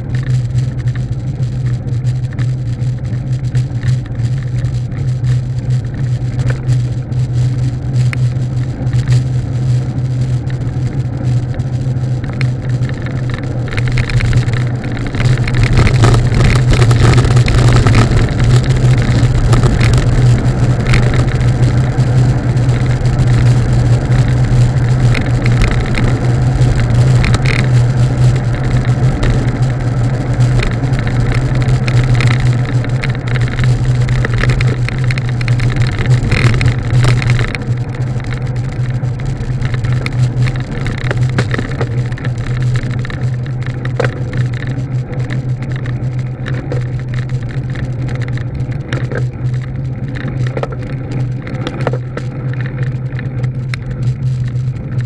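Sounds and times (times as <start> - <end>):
low vehicle hum: 0.0 - 55.0
road and wind noise: 0.0 - 55.0.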